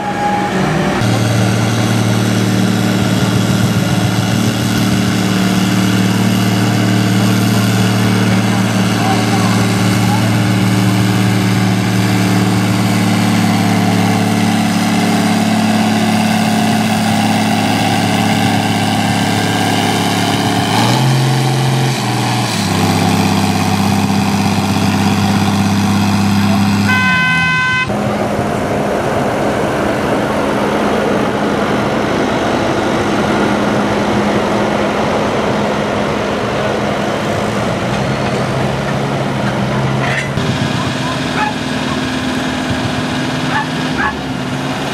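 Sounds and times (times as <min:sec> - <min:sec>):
rougher tractor engine under load: 0:00.0 - 0:44.9
tractor diesel engine under load: 0:00.0 - 0:44.9
short horn toot: 0:26.8 - 0:27.9.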